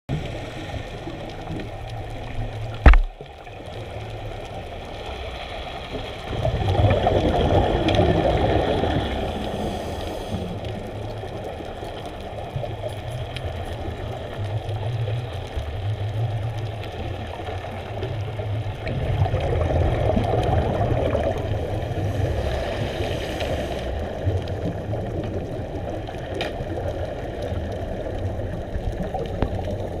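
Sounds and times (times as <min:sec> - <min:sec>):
low underwater rumble: 0:00.1 - 0:30.0
sharp knock: 0:02.8 - 0:03.1
divers exhaling bubbles: 0:06.0 - 0:11.7, 0:17.0 - 0:30.0.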